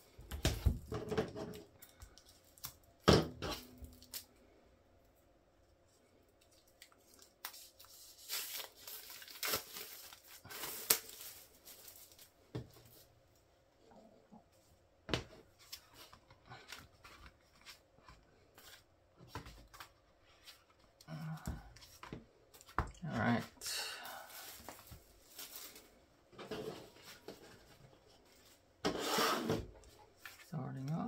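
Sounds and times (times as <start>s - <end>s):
plastic shrink wrap tearing: 6.8s - 12.3s.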